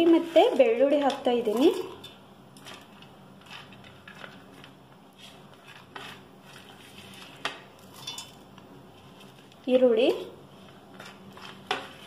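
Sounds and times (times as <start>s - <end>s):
food pieces tapping in metal jar: 7.9s - 8.4s.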